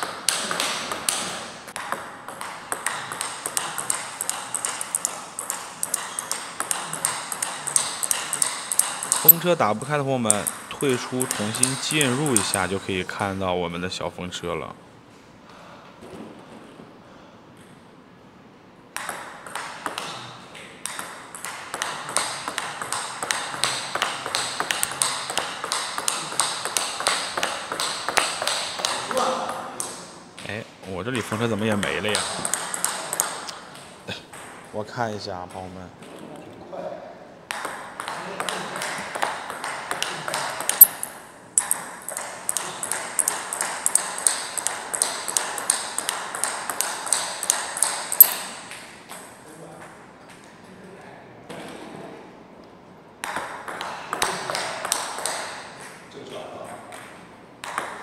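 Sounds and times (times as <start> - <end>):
table tennis ball clicks: 0.0 - 12.8, 20.6 - 29.0, 31.8 - 34.5, 38.8 - 49.2.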